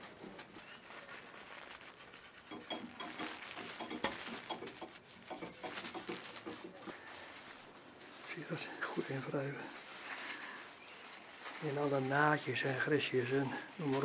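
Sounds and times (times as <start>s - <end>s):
gloved hands rustling: 0.0s - 14.0s.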